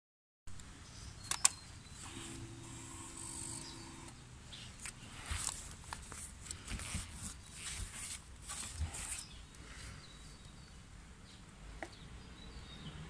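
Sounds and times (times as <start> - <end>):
sharp clicks: 0.6 - 1.6
fuel pump electric hum: 2.0 - 4.2.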